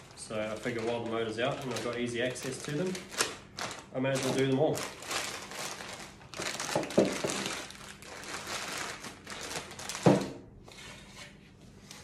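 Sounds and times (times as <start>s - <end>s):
plastic bags crinkling: 0.0s - 10.4s
bags thumping on table: 6.6s - 7.6s, 9.9s - 10.4s.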